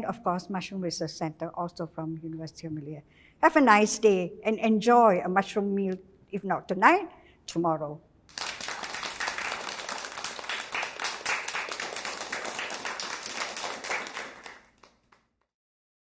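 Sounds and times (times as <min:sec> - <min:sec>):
audience applauding: 0:08.3 - 0:15.3.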